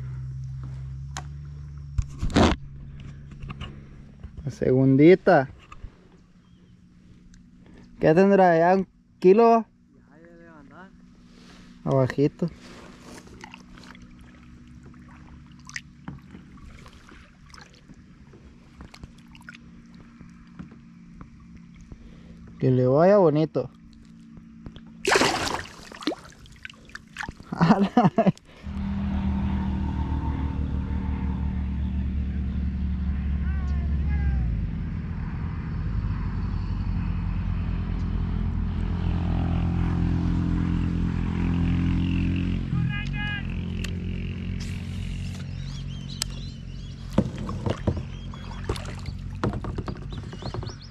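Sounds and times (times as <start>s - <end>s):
steady low hum: 0.0s - 41.5s
engine drone: 0.0s - 50.9s
water sloshing: 12.5s - 22.6s, 23.7s - 27.6s, 46.9s - 50.9s
small splashes: 12.9s - 22.5s, 23.7s - 27.6s, 47.0s - 50.6s
light knocks against hull: 46.9s - 50.9s.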